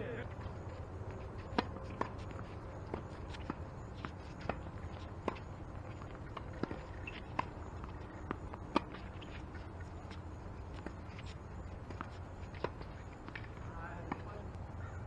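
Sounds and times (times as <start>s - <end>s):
outdoor background noise: 0.0s - 15.0s
tennis ball hit by racquets: 1.1s - 9.8s.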